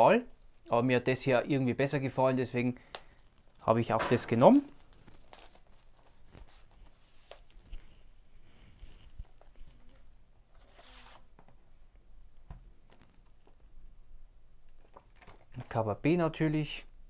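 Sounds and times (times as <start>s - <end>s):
packaging rustling: 4.4s - 8.1s.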